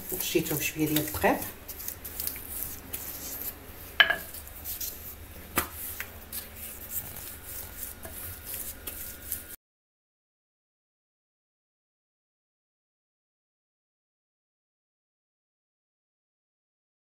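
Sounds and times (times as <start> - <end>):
rolling pin rolling dough: 0.0 - 9.6
rolling pin knocking on stone: 4.0 - 4.3.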